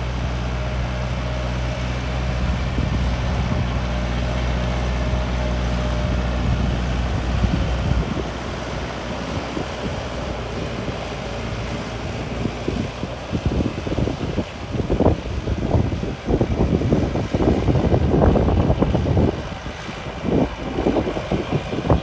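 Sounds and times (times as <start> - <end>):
tractor diesel engine running: 0.0 - 22.0
wind on microphone: 2.2 - 22.0.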